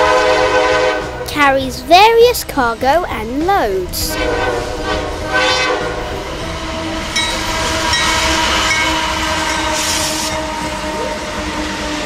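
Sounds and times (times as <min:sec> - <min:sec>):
train horn blast: 0:00.0 - 0:01.3, 0:04.1 - 0:12.0
diesel locomotive engines running: 0:00.0 - 0:12.0
freight cars rolling past: 0:04.0 - 0:12.0.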